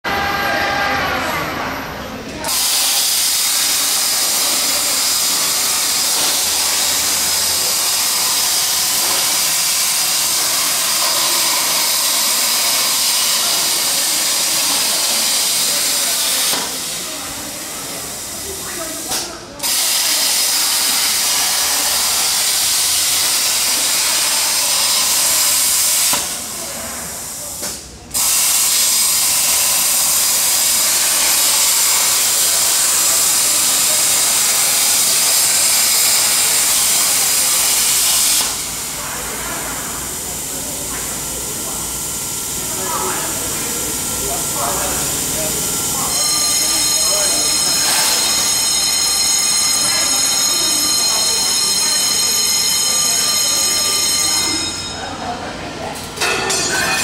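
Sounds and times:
plasma torch hissing: 2.5 - 46.6.

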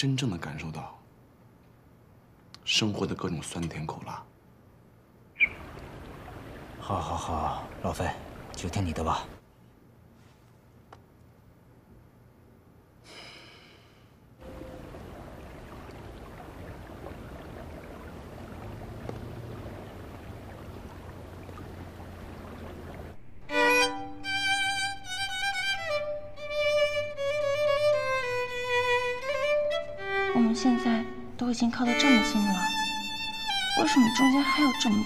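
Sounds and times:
solo violin melody: 23.4 - 35.0.

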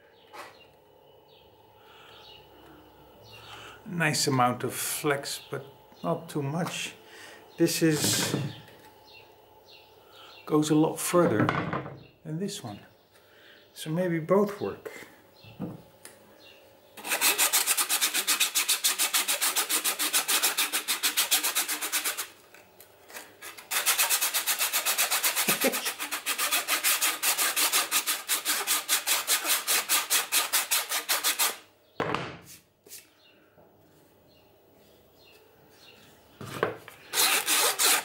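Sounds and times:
sanding belt rubbing on wood: 17.0 - 22.4, 23.4 - 31.6, 37.1 - 38.0.

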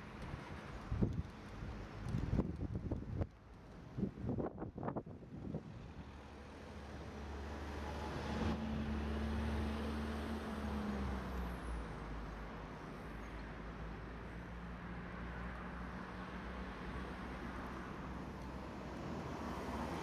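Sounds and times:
passing vehicle engine hum: 5.7 - 20.0.

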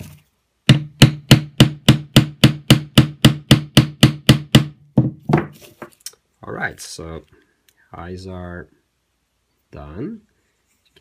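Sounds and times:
hammer tapping on steel punch: 0.7 - 4.8.

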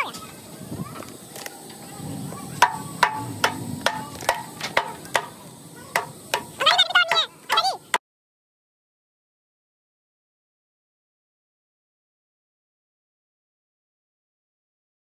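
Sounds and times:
hammer striking concrete: 2.6 - 7.7.

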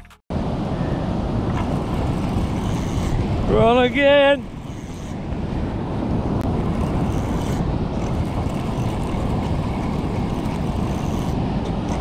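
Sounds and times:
wind on microphone: 0.3 - 12.0
fishing reel winding: 6.7 - 12.0.

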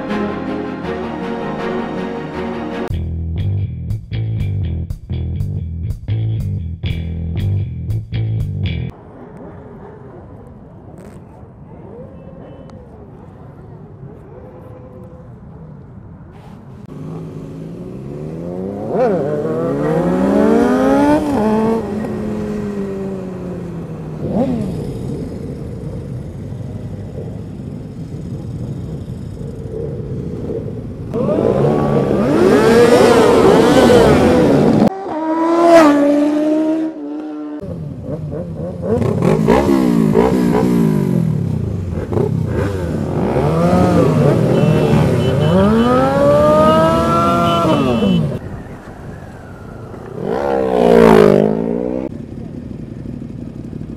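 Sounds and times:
motorcycle engines revving and passing: 13.8 - 53.9.

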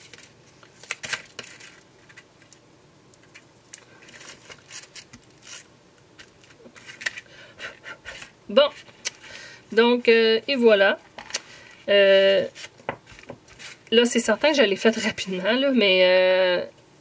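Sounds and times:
paper scrapes rustles and taps: 12.5 - 13.9.

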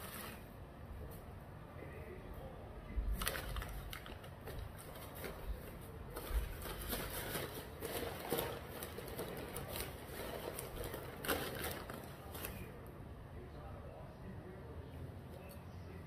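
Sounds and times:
paper packaging crackling: 0.0 - 0.5, 3.1 - 12.9.

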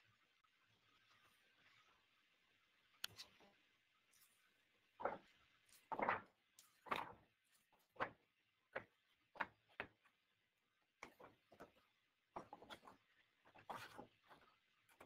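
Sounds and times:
soft clicks: 3.0 - 3.3.

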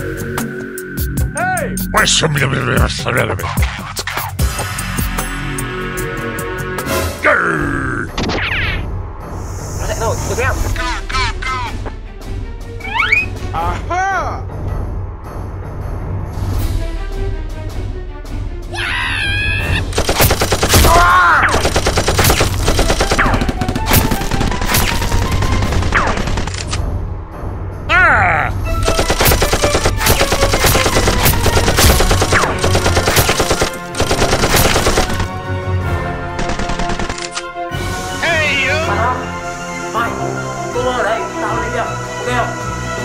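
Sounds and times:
background music: 0.0 - 43.0
automatic gunfire bursts: 20.0 - 26.6, 28.8 - 35.3, 36.4 - 37.2.

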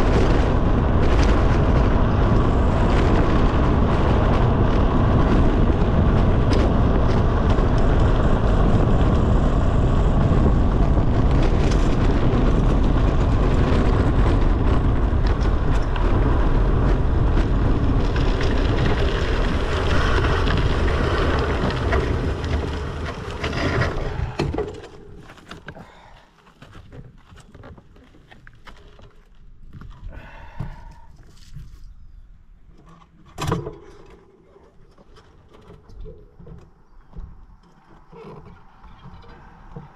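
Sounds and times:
wind buffeting microphone: 0.0 - 28.6
clicks and knocks over bumps: 0.0 - 31.8, 32.7 - 39.9
tyre and road noise: 0.0 - 39.9.

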